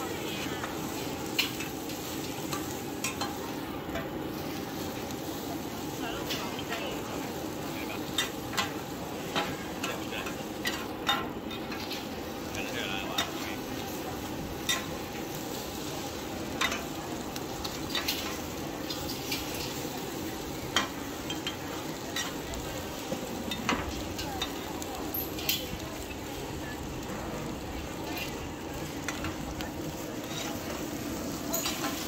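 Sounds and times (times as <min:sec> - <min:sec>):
egg sizzling in a wok: 0:00.0 - 0:32.0
metal turners scraping a pan: 0:00.2 - 0:05.1, 0:08.0 - 0:12.3, 0:14.6 - 0:15.7, 0:16.5 - 0:20.0, 0:20.6 - 0:22.8, 0:23.4 - 0:26.3, 0:28.0 - 0:32.0.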